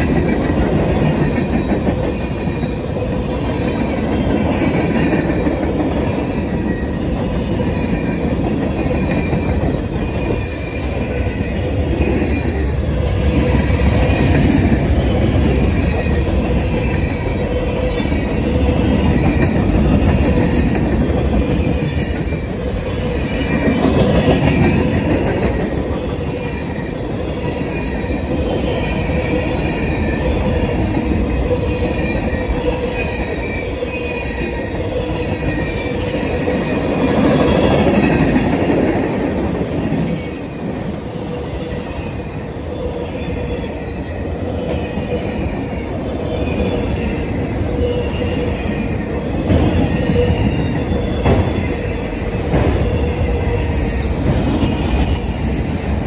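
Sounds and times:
freight cars rumbling on rails: 0:00.0 - 0:56.0
wheel squeal: 0:42.7 - 0:56.0.

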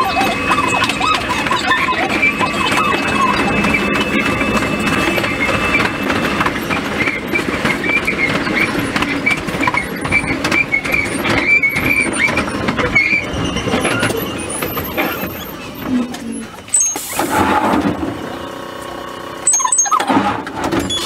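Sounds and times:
thin high tone: 0:00.0 - 0:06.5
train running noise: 0:00.0 - 0:21.0
wheels clicking over rail joints: 0:00.0 - 0:21.0.

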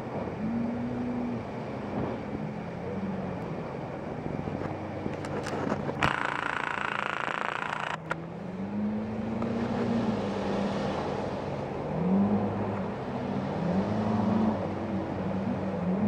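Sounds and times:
outboard motor running hard: 0:00.0 - 0:16.0
rush of water: 0:08.7 - 0:16.0.

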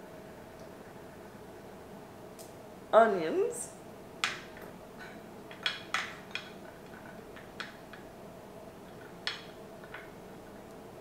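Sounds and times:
kitchenware clicking on a table: 0:05.5 - 0:08.1, 0:08.9 - 0:10.2.

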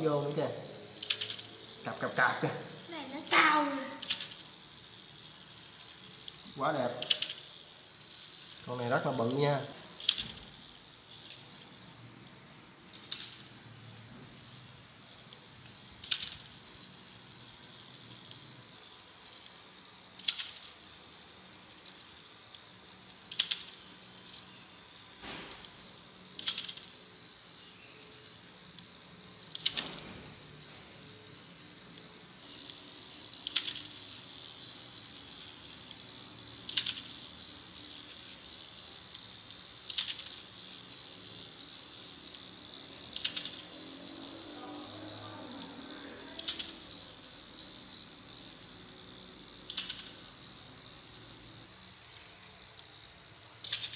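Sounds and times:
toy gearbox whine: 0:00.0 - 0:53.9
plastic ratcheting clicks: 0:01.0 - 0:01.5, 0:04.0 - 0:04.5, 0:10.0 - 0:10.4, 0:12.9 - 0:13.5, 0:16.0 - 0:16.5, 0:20.2 - 0:20.7, 0:23.3 - 0:24.4, 0:26.4 - 0:26.9, 0:29.5 - 0:30.0, 0:33.4 - 0:34.0, 0:36.6 - 0:37.3, 0:38.1 - 0:40.8, 0:43.1 - 0:43.7, 0:46.4 - 0:47.0, 0:49.6 - 0:50.3, 0:53.6 - 0:53.9.

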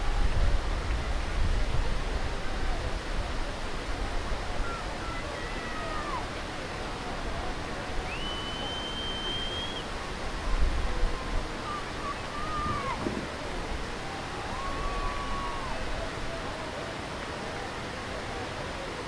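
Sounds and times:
faint distant voices: 0:00.0 - 0:19.0
water rushing over weir: 0:00.0 - 0:19.0
high whistle-like tone: 0:08.1 - 0:09.9.

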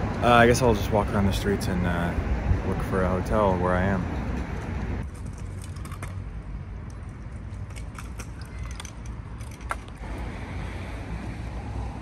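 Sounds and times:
light clicks and jingles: 0:06.8 - 0:10.0.

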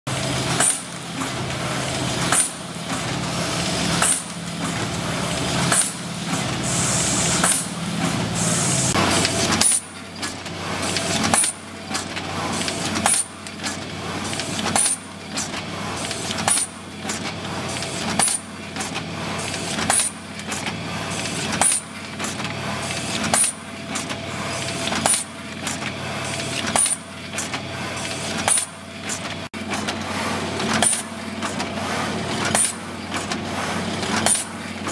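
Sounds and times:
packing machine clacking: 0:00.1 - 0:06.8, 0:08.9 - 0:24.2, 0:24.9 - 0:34.9
steady machine hum: 0:00.1 - 0:13.0.

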